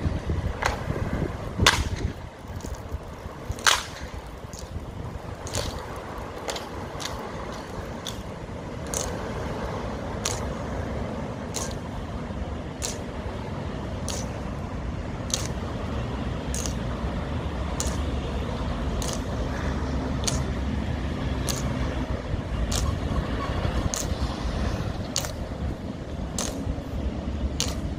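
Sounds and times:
steady low rumble: 0.0s - 27.9s
boot clacks marching: 1.6s - 10.6s, 11.5s - 11.9s, 23.8s - 27.9s.

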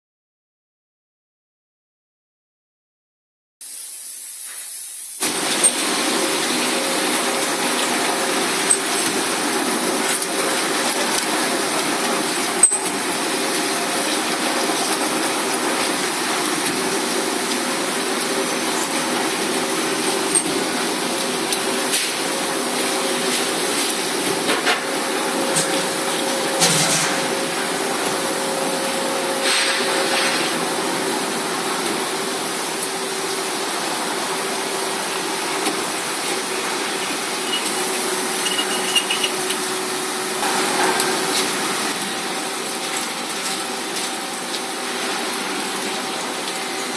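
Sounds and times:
drilling machine hum: 34.9s - 40.8s.

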